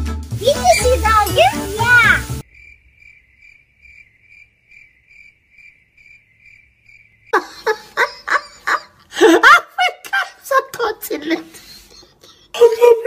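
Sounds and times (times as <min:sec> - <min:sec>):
loud voices: 0:00.4 - 0:02.2
crickets chirping: 0:02.4 - 0:08.9.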